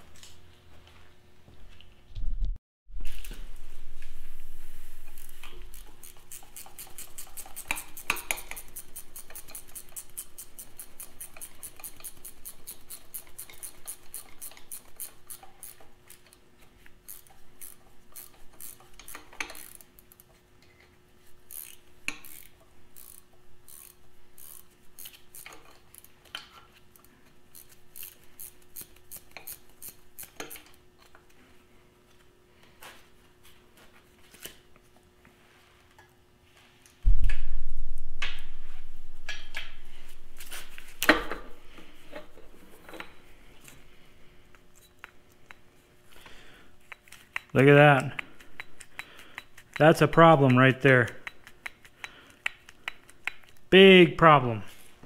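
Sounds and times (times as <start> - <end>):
faint steady hum: 3.0 - 55.0
ratchet wrench clicking: 5.2 - 16.3, 17.0 - 19.9, 21.5 - 26.1, 27.5 - 30.7.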